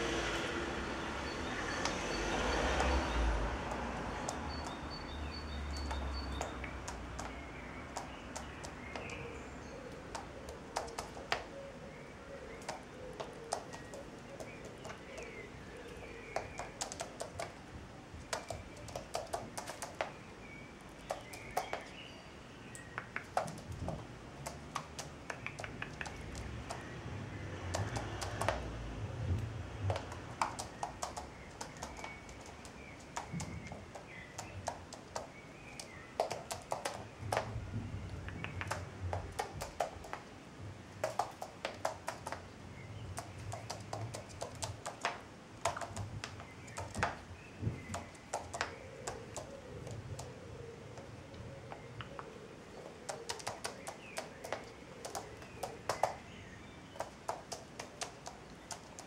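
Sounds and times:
bird claws tapping on laminate floor: 0:18.3 - 0:20.2, 0:22.8 - 0:26.8, 0:29.9 - 0:37.5, 0:38.2 - 0:40.2, 0:41.0 - 0:42.4, 0:43.2 - 0:47.2, 0:53.0 - 0:56.2.

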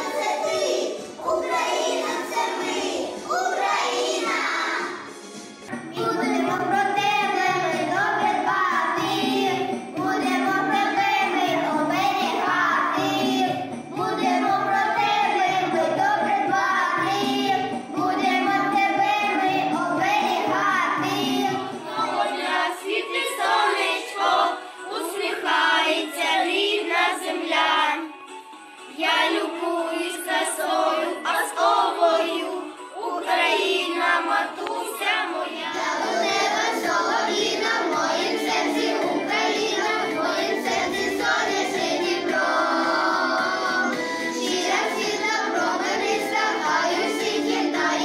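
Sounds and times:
children singing together: 0:00.0 - 0:28.2, 0:28.9 - 0:48.0
karaoke backing track: 0:00.0 - 0:48.0.

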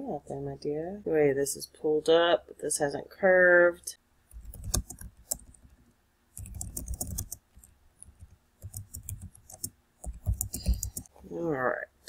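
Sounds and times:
computer keyboard typing: 0:04.3 - 0:05.8, 0:06.4 - 0:11.1.

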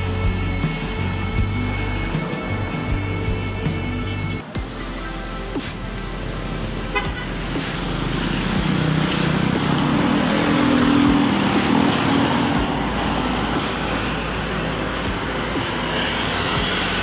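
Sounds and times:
street traffic: 0:00.0 - 0:17.0
vehicle engine passing close: 0:07.4 - 0:17.0.

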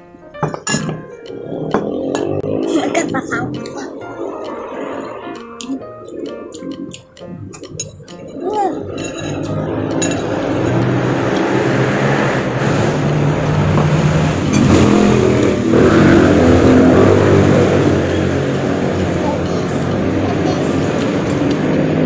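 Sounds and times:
vehicle engine running: 0:09.2 - 0:22.0.

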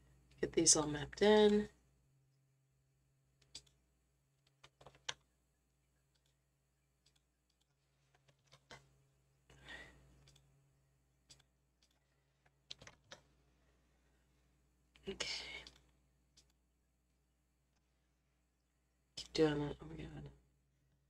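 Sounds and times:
mouse and keyboard clicks: 0:03.4 - 0:03.8, 0:04.5 - 0:05.2, 0:07.0 - 0:08.8, 0:11.3 - 0:12.0, 0:12.6 - 0:13.3.

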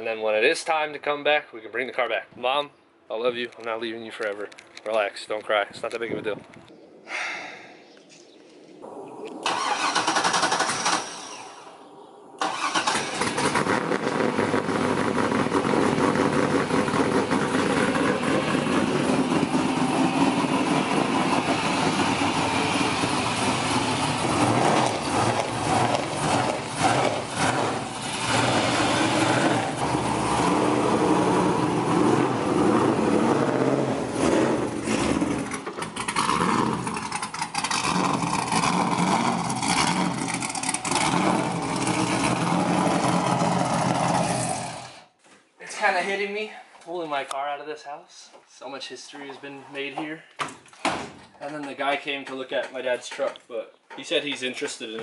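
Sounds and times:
car engine starting and running: 0:08.8 - 0:45.1.

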